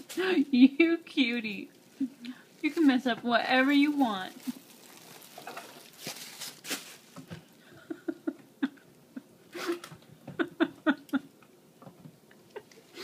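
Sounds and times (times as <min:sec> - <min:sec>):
plastic bags rustling: 0:00.0 - 0:07.6.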